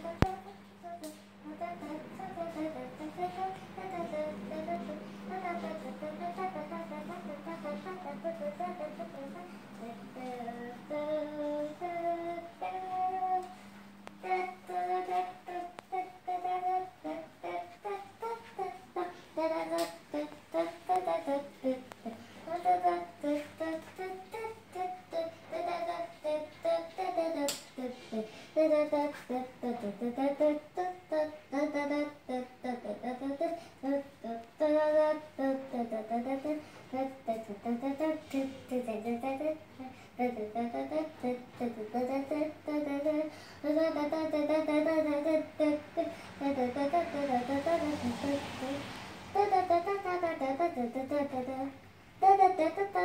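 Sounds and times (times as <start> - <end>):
child humming a tune: 0.0 - 13.6
child singing held notes: 0.0 - 53.0.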